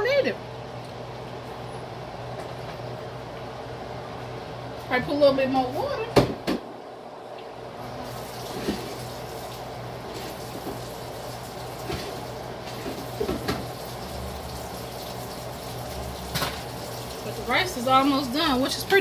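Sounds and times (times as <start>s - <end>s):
vegetables sizzling in a wok: 8.0s - 18.4s.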